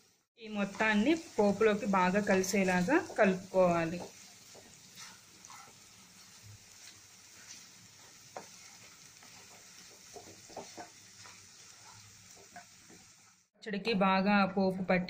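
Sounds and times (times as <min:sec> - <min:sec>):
faint sizzling: 0:00.0 - 0:13.6
wooden spatula stirring: 0:00.6 - 0:13.2
spatula tapping and scraping pan: 0:02.1 - 0:13.2.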